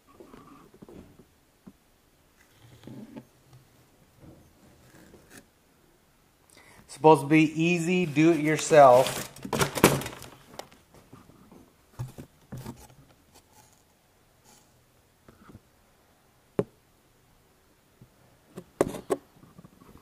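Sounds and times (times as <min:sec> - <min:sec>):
paper rustling: 0:07.8 - 0:10.8.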